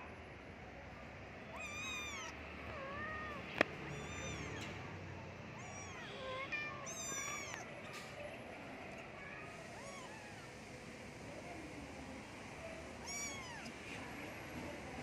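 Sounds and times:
cat meowing: 0:01.4 - 0:04.8, 0:05.5 - 0:08.1, 0:08.9 - 0:10.6, 0:13.0 - 0:13.8.

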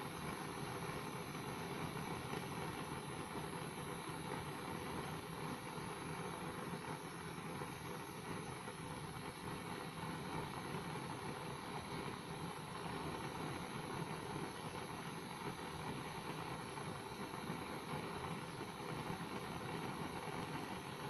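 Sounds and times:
blowtorch flame hissing: 0:00.0 - 0:21.0.

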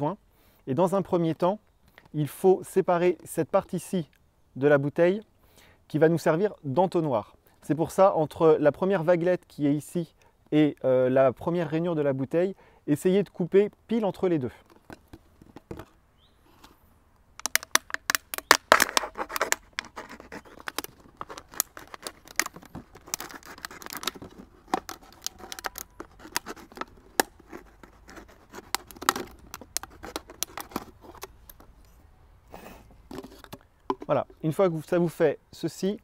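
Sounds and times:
blade cutting plastic bottle: 0:17.4 - 0:31.6.

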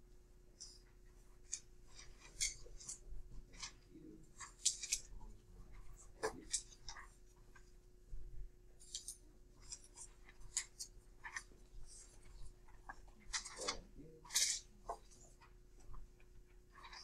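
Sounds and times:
paper and pencils rustling: 0:00.5 - 0:17.0.

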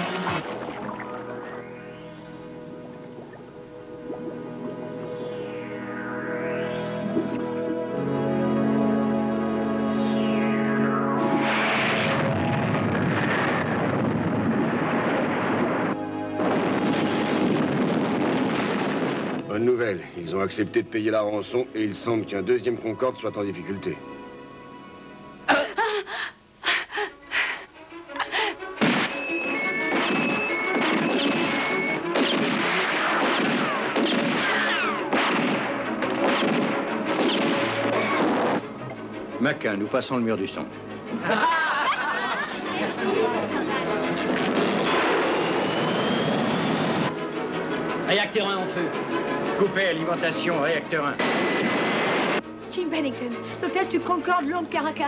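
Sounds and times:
trailer music: 0:00.0 - 0:25.5, 0:27.8 - 0:55.0
loud bangs and crashes: 0:11.3 - 0:19.4
falling whistles: 0:29.0 - 0:32.2, 0:32.8 - 0:35.1, 0:44.8 - 0:47.1.

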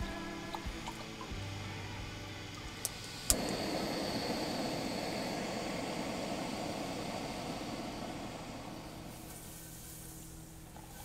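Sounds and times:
gas burner hissing: 0:00.0 - 0:11.0
stove igniter click: 0:02.8 - 0:09.4.

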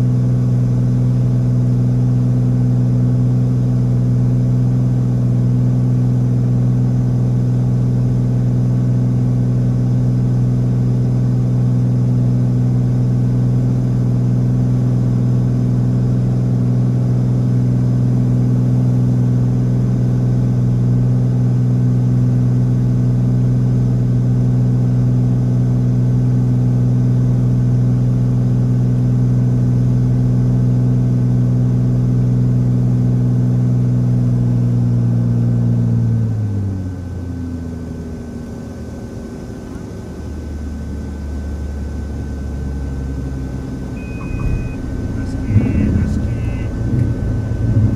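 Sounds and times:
propeller engine drone: 0:38.9 - 0:47.9.

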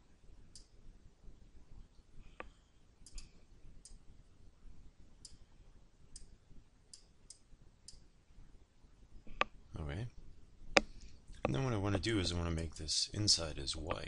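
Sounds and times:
computer mouse clicks: 0:02.4 - 0:04.0.

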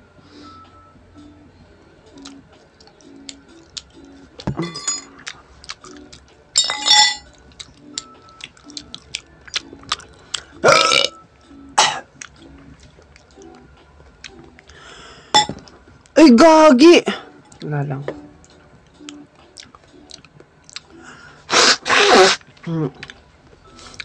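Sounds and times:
man burping: 0:10.6 - 0:11.1
slurping and mouth noises: 0:21.5 - 0:22.4.

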